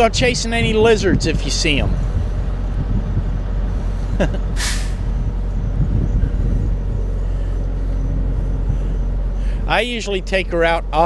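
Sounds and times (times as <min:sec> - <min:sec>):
trucks idling: 0:00.0 - 0:11.0
air brakes hissing: 0:03.7 - 0:09.7.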